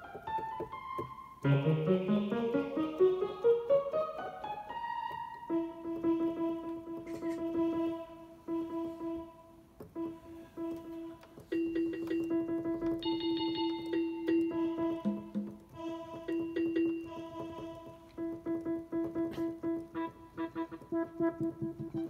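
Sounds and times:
electronic keyboard piano notes: 0:00.0 - 0:22.0.

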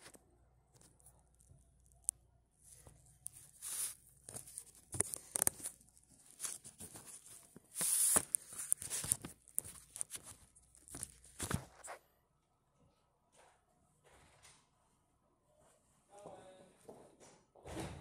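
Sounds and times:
phone handling scraping and rustling: 0:02.7 - 0:12.0.

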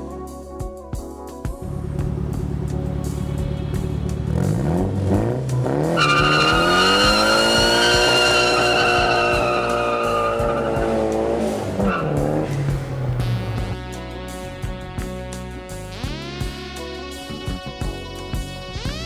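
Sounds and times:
car engine revving: 0:01.8 - 0:14.4
tyre squeal: 0:06.0 - 0:12.5.

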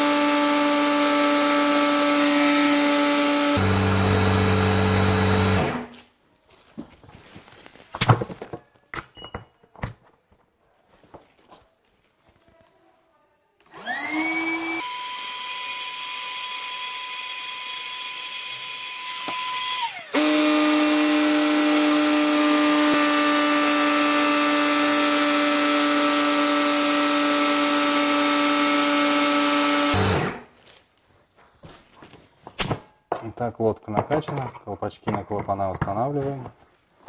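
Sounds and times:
electric pump motor whining: 0:00.0 - 0:05.9, 0:13.7 - 0:30.5.

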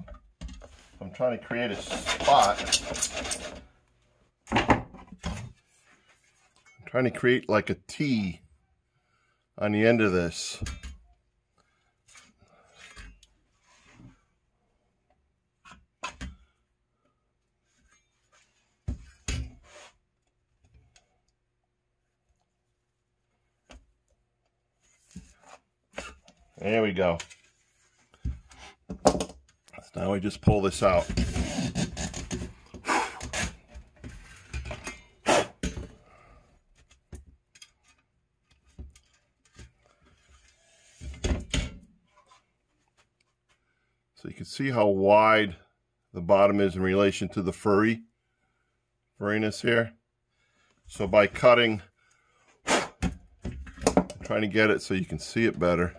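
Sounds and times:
weather stripping scraping: 0:01.5 - 0:03.7.

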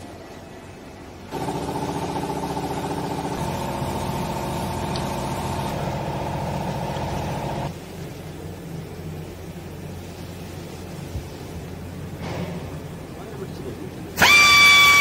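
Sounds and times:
machine motor humming: 0:01.3 - 0:07.7.

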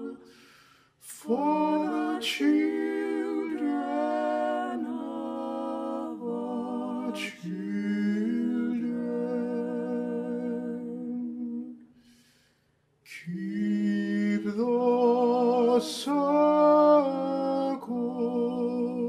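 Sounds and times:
singer taking a breath: 0:00.2 - 0:01.0, 0:11.9 - 0:12.9.

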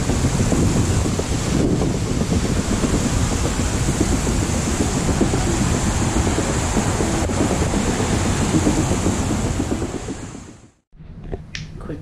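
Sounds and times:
hiss: 0:00.0 - 0:10.6
steady rumbling noise: 0:00.0 - 0:12.0.

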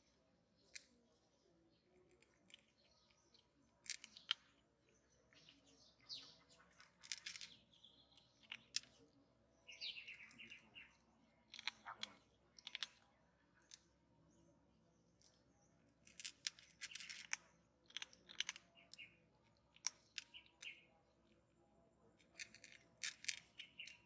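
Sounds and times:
bird chirps: 0:02.6 - 0:12.8, 0:18.6 - 0:21.0, 0:23.4 - 0:24.0
kitten crunching dry kibble: 0:06.8 - 0:07.6, 0:11.5 - 0:13.0, 0:16.1 - 0:18.7.

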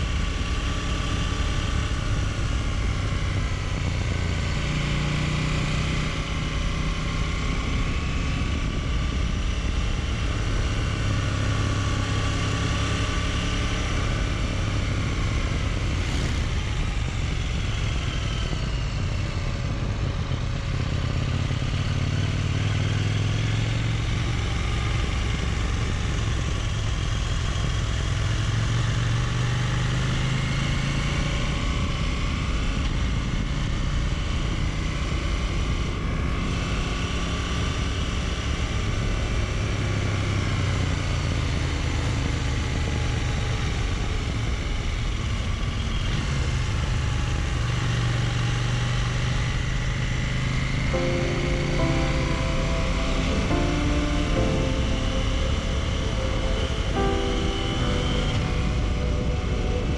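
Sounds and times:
motorcycle engine running: 0:00.0 - 0:59.9
road noise: 0:00.0 - 0:59.9.

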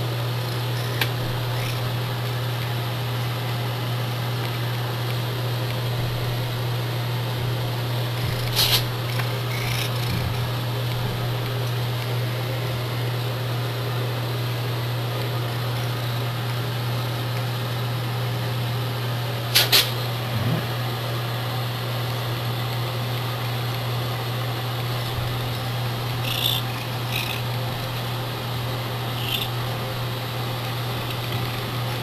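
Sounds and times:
cat purring: 0:05.7 - 0:12.8.

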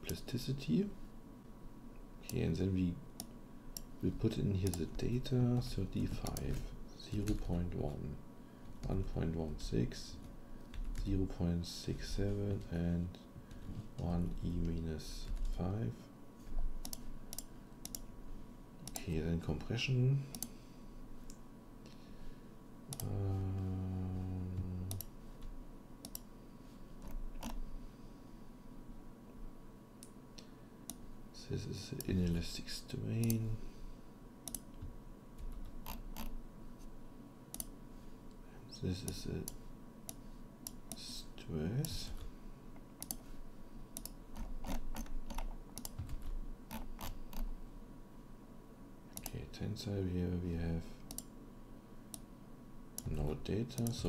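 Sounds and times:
low steady hum: 0:00.0 - 0:54.0
computer mouse clicking: 0:16.8 - 0:18.1, 0:18.8 - 0:19.1, 0:20.3 - 0:20.5, 0:24.9 - 0:25.1, 0:26.0 - 0:26.3, 0:34.4 - 0:36.3, 0:37.5 - 0:37.7, 0:43.0 - 0:43.2, 0:44.0 - 0:47.5, 0:49.1 - 0:49.3, 0:51.1 - 0:51.3.

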